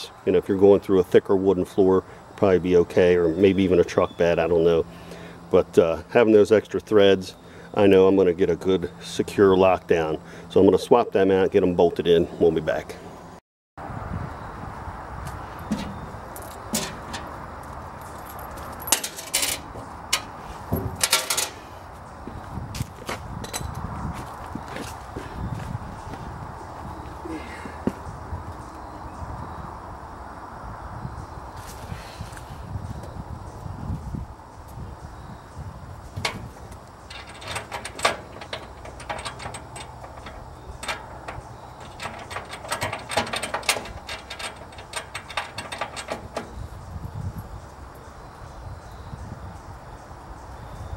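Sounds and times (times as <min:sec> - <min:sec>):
metallic clicking and clattering: 0:15.7 - 0:17.4, 0:18.3 - 0:20.3, 0:21.0 - 0:21.6, 0:36.2 - 0:46.6
metal washers clinking on aluminum: 0:18.2 - 0:20.4, 0:21.0 - 0:21.6, 0:36.2 - 0:46.6.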